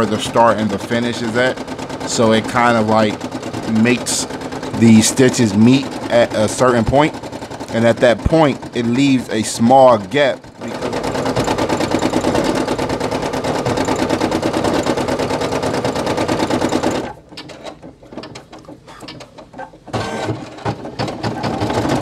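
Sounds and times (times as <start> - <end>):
embroidery machine stitching: 0.0 - 22.0
faint clicks and knocks: 17.0 - 22.0.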